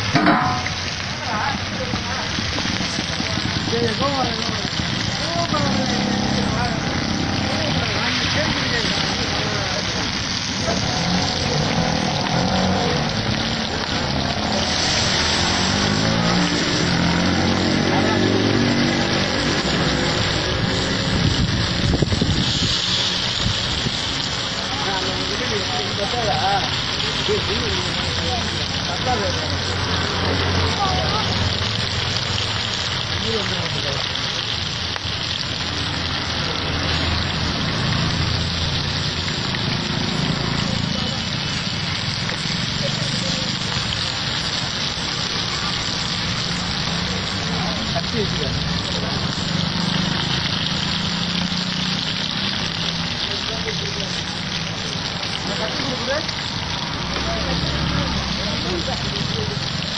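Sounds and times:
fish sizzling in hot oil: 0.0s - 59.9s.

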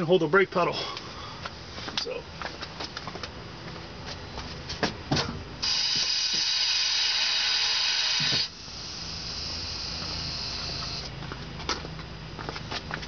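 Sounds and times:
brake pump high-pitched whine: 5.2s - 11.2s.

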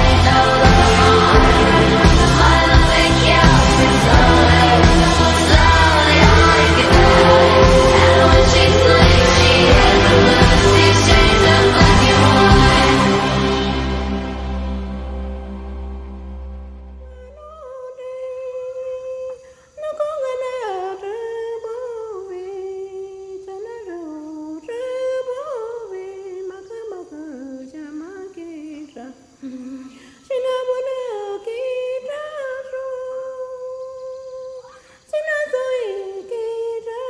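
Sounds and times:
low musical drone: 0.0s - 17.2s
person humming a melody: 25.4s - 30.0s.

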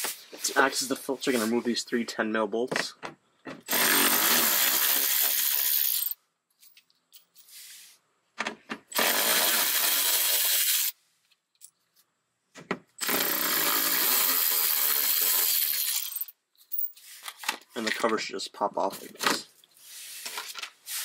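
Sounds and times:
electric ratchet spinning bolts: 3.7s - 6.2s, 8.9s - 11.0s, 13.0s - 16.3s.

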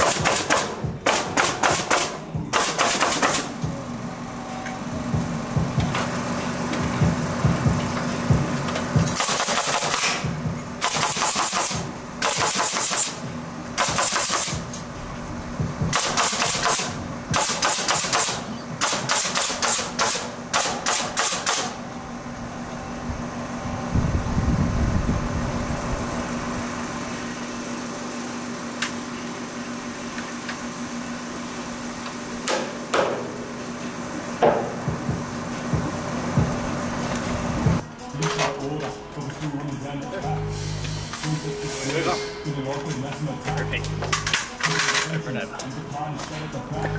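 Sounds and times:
pneumatic nail gun firing: 0.0s - 3.6s, 8.7s - 14.8s, 15.9s - 21.8s, 32.4s - 33.4s
steady low hum: 0.0s - 46.9s.

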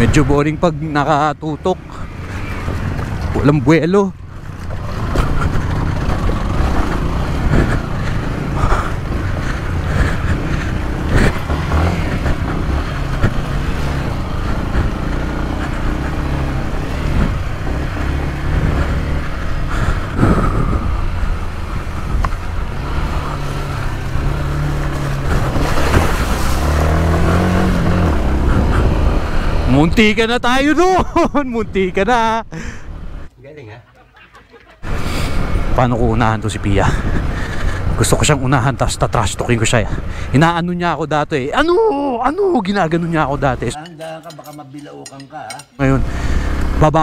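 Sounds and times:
dirt bike engine revving: 0.0s - 30.1s, 45.8s - 47.0s.

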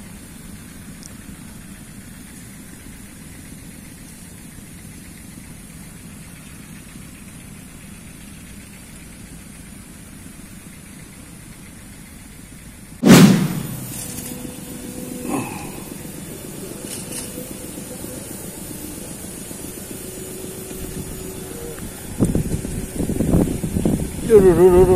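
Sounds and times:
low background rumble: 0.0s - 24.9s
loud knock: 13.0s - 14.4s.

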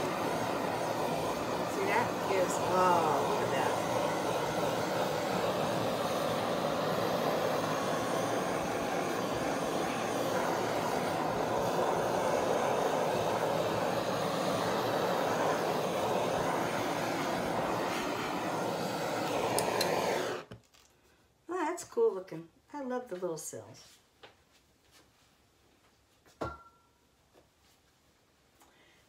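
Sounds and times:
gas torch flame roar: 0.0s - 20.6s.

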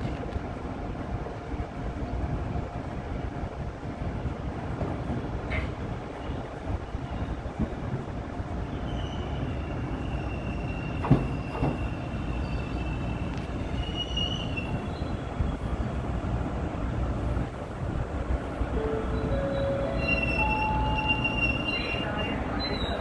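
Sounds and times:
train running gear rumble: 0.0s - 23.0s
high thin brake squeal: 19.2s - 23.0s.

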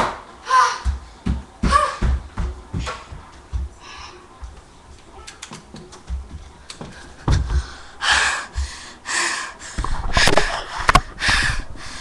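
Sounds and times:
loud breathy rush: 7.0s - 12.0s.

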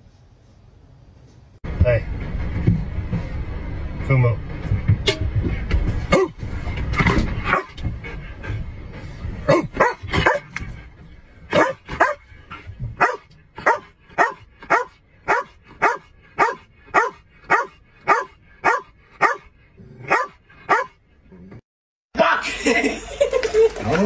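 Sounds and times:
low rumble: 1.7s - 18.6s
dog barking: 7.5s - 7.8s, 9.5s - 10.5s, 11.5s - 12.2s, 13.0s - 21.0s.

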